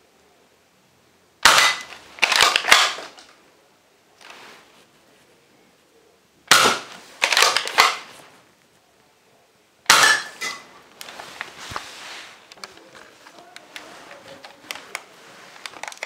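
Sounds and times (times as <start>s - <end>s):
plastic slide clacking: 11.0s - 16.0s.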